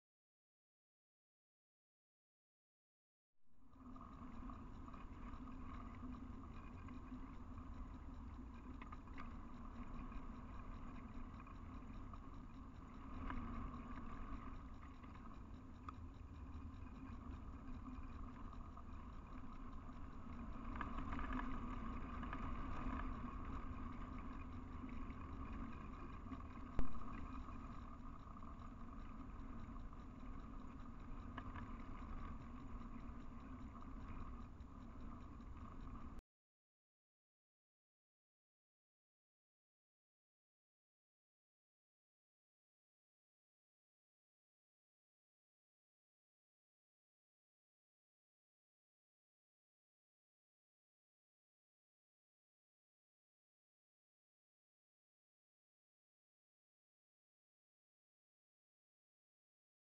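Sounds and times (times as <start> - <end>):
electronic hum and low rumble: 3.4 - 36.2.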